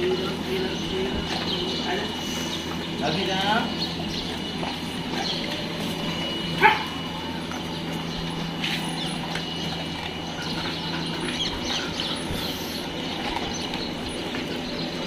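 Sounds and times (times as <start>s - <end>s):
steady low hum: 0.0s - 15.0s
dog yelping: 6.6s - 7.0s.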